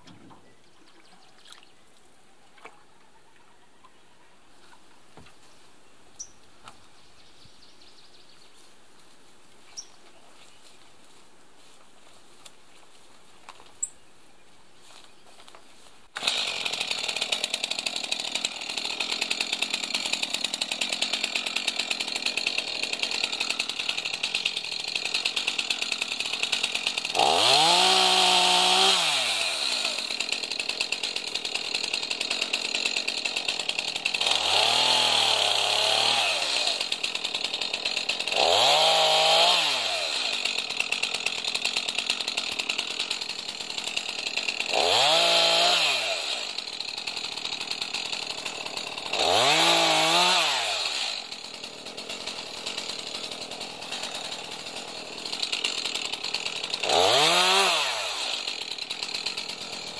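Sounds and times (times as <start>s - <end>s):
chainsaw idling and revving: 16.1s - 59.9s.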